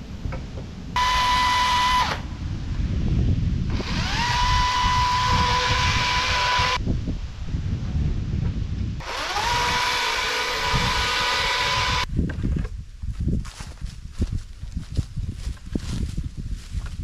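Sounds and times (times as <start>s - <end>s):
low rumble of saw cutting log: 1.0s - 2.3s, 3.7s - 6.8s, 9.0s - 12.1s
power saw motor whine: 1.0s - 2.3s, 3.7s - 6.8s, 9.0s - 12.1s.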